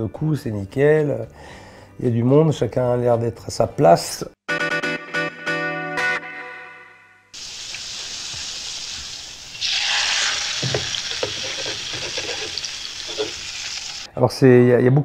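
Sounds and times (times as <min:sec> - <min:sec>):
meat sizzling in oil: 0:07.4 - 0:14.1.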